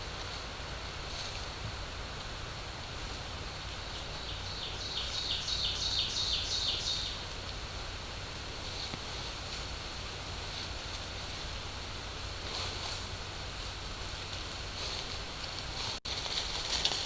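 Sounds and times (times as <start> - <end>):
steady hiss and low hum: 0.0 - 17.0
songbird singing: 3.4 - 7.7.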